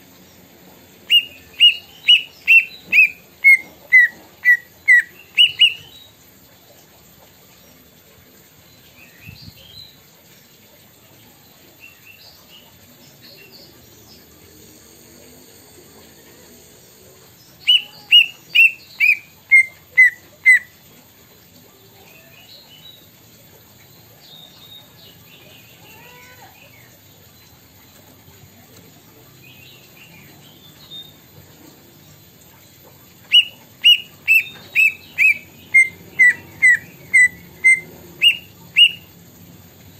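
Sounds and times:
bird chirping and twittering: 0:01.0 - 0:06.2, 0:17.4 - 0:20.7, 0:29.4 - 0:39.2
bird whistling downward notes: 0:33.3 - 0:39.1.

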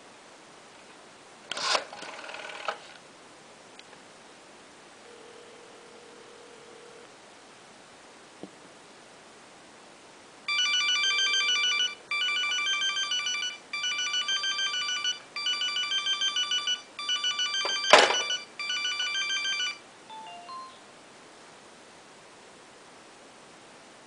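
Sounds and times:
cell phone electronic ringtone: 0:10.5 - 0:20.8
phone handset hung up clunk: 0:17.6 - 0:18.4
faint beeps: 0:20.1 - 0:20.9.

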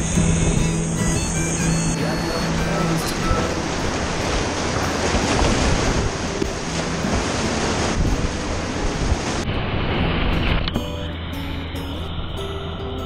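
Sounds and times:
whitewater rushing and splashing: 0:00.0 - 0:13.0
wind buffeting microphone: 0:00.0 - 0:13.0.

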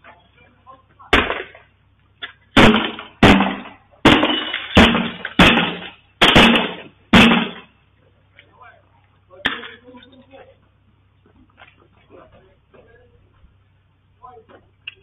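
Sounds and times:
windows being smashed: 0:01.1 - 0:01.6, 0:02.6 - 0:07.7.

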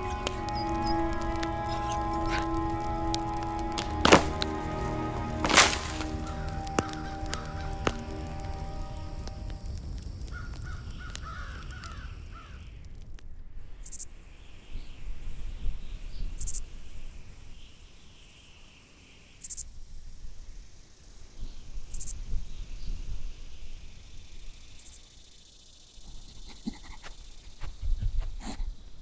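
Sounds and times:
animal calls: 0:00.0 - 0:09.1, 0:26.1 - 0:28.7.

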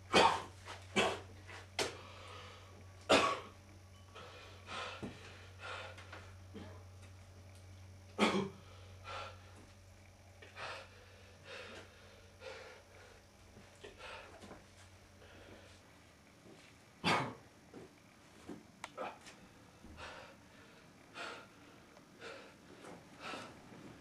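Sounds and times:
steady low hum: 0:00.0 - 0:24.0
man breathing hard and gasping: 0:04.2 - 0:06.7, 0:10.4 - 0:13.2, 0:19.0 - 0:23.6.

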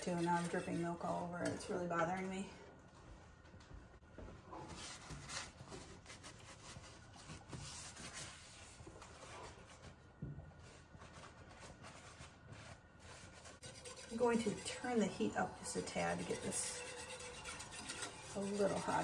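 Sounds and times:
cloth towel rubbing stove top: 0:04.2 - 0:19.0.

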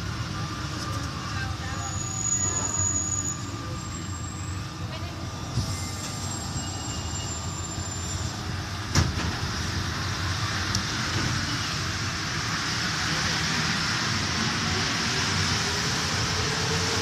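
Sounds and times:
metro train rumble with whine: 0:00.0 - 0:17.0.

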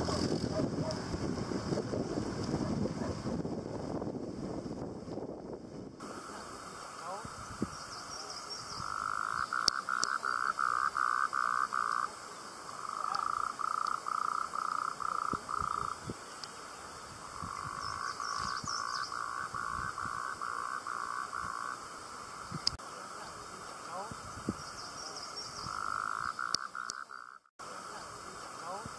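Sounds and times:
frog croaking: 0:06.0 - 0:16.2, 0:17.2 - 0:28.9.

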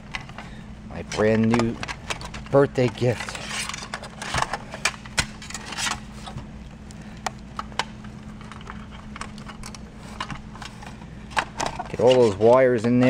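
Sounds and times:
faint steady hum: 0:00.0 - 0:13.0
plastic plugs clicking and rattling: 0:01.1 - 0:05.4.

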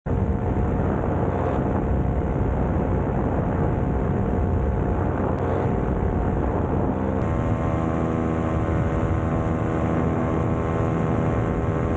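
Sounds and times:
wind rumble on microphone: 0:00.0 - 0:11.9
drone motors whining: 0:05.3 - 0:11.9.

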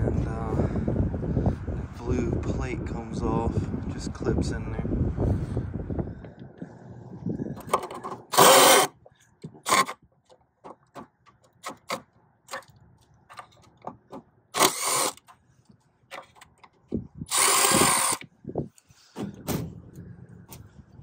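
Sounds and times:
cordless drill driving screws: 0:08.3 - 0:08.9, 0:09.6 - 0:10.0, 0:14.6 - 0:15.3, 0:17.3 - 0:18.2.

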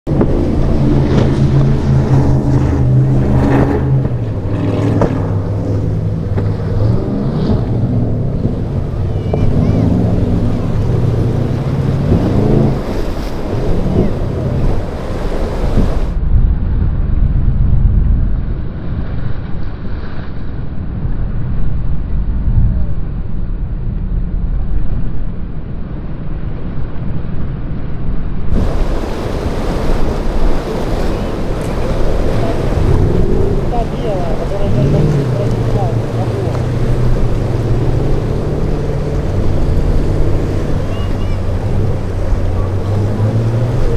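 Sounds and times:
powerboat engines running: 0:00.0 - 0:16.2, 0:28.6 - 0:43.9
surf crashing against hull: 0:00.0 - 0:21.3, 0:28.5 - 0:43.9
wind buffeting microphone: 0:00.0 - 0:43.9.

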